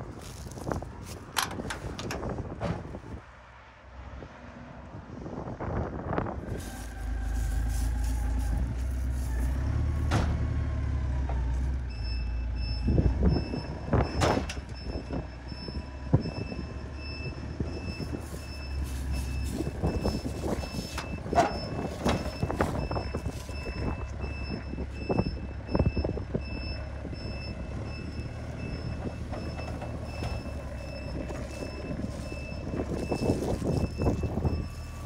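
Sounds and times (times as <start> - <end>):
forklift engine rumbling: 0.0 - 3.5, 6.2 - 35.0
reverse alarm beeping: 11.9 - 35.0.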